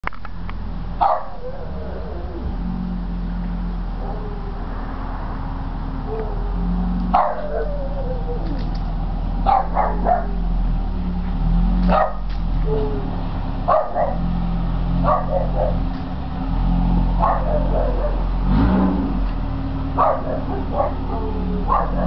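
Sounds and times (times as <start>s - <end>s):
dog yelping barks: 1.0s - 2.2s, 4.0s - 4.6s, 6.0s - 8.6s, 9.4s - 10.5s, 11.9s - 13.1s, 13.7s - 14.3s, 15.0s - 15.9s, 17.2s - 18.3s, 20.0s - 22.0s.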